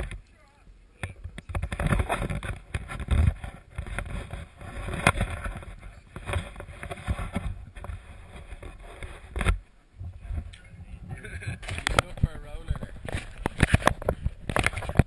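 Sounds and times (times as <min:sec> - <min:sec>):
wind and camera handling rumble: 0:01.0 - 0:15.0.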